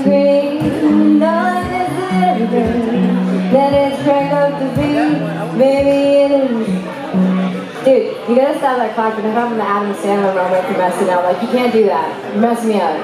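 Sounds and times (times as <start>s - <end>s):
woman singing slow melody: 0.0s - 6.8s
strummed acoustic guitar: 0.0s - 7.9s.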